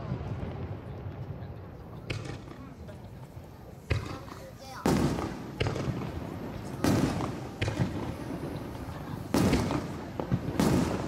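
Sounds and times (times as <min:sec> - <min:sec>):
firework shells bursting: 0:03.8 - 0:11.0.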